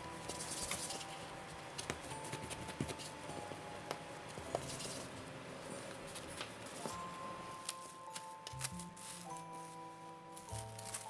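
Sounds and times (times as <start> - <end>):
hands patting dough: 0.0 - 5.1
soft background music: 0.0 - 11.0.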